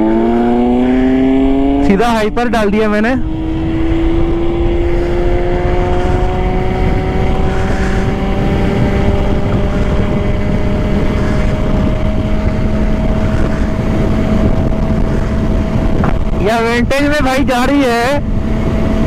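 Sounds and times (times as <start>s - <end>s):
wind rumble on microphone: 0.0s - 19.0s
electric scooter whine: 3.2s - 16.9s, 18.0s - 19.0s.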